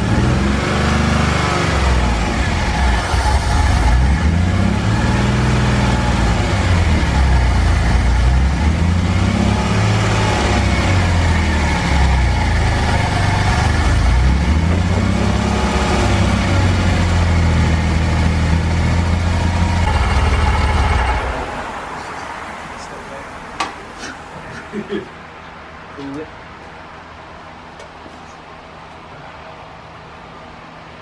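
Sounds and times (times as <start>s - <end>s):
car engine running: 0.0s - 23.0s.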